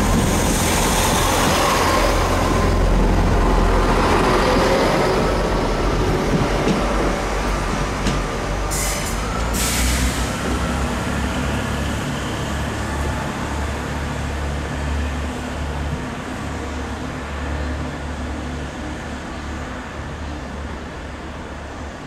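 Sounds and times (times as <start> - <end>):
diesel train engine rumble: 0.0 - 22.0.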